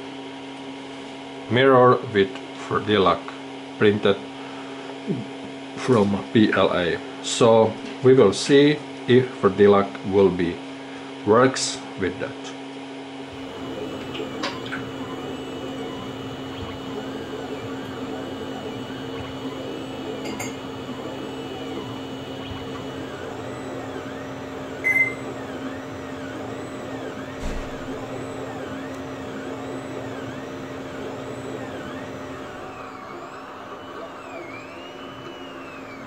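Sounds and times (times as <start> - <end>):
three d printer humming and whining: 13.1 - 36.0.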